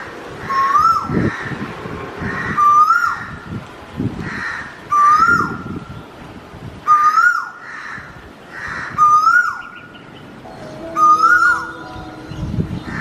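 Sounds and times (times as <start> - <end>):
koel calling: 10.5 - 13.0.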